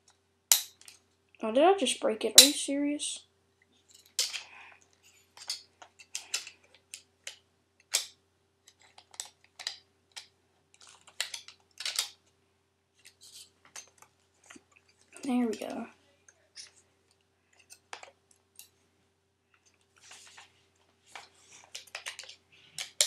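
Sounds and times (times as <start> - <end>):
plastic parts clicking: 5.4 - 12.2, 21.1 - 23.0.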